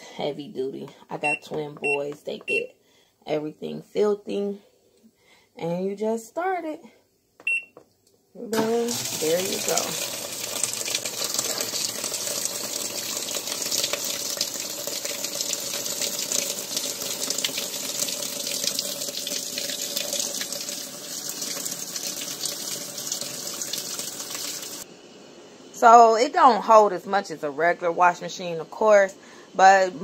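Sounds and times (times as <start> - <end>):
faint steady hum: 0.0 - 22.2, 22.8 - 30.0
water pouring into washing machine: 8.6 - 24.8.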